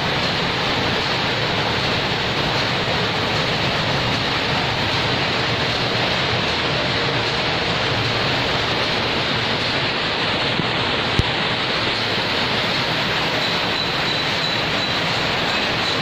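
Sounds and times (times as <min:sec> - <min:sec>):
power looms running: 0:00.0 - 0:16.0.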